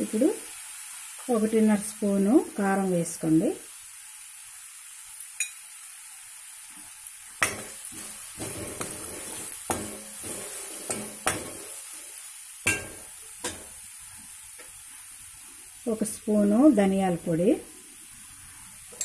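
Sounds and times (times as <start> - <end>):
oil sizzling: 0.0 - 19.0
spoon knocking against pan: 7.4 - 10.2, 10.9 - 11.6, 12.7 - 13.8
spoon scraping a pan: 7.4 - 12.0.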